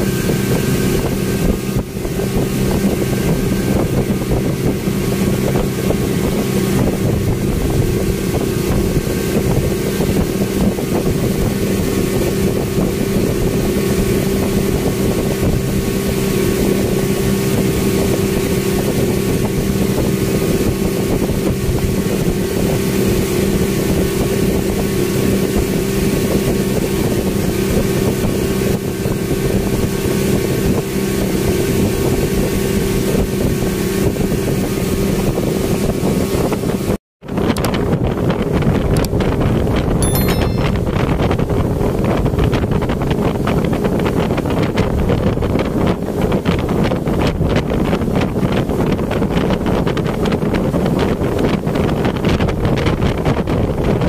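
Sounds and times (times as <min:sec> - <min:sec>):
wind rushing: 0:00.0 - 0:13.6
speedboat engine drone: 0:00.0 - 0:36.9.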